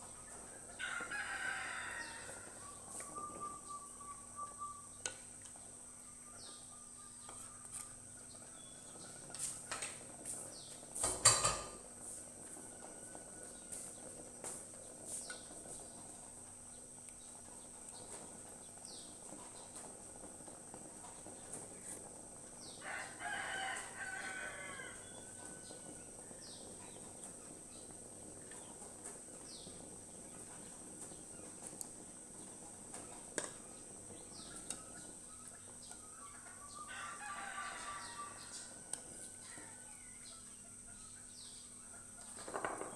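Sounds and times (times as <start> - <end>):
small birds chirping: 0.0 - 42.9
rooster crowing: 0.7 - 4.1, 22.7 - 26.3, 36.5 - 40.1.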